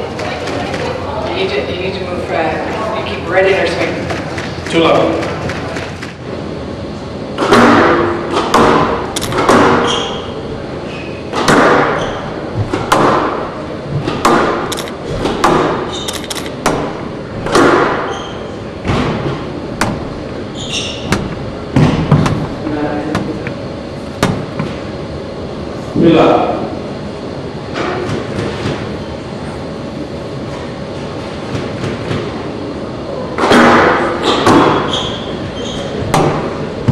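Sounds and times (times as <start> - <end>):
squash ball hitting racquets and walls: 7.3 - 10.5, 11.1 - 23.4, 24.2 - 24.9, 33.4 - 36.9
shoes squeaking on wooden floor: 20.5 - 21.2, 34.2 - 36.1.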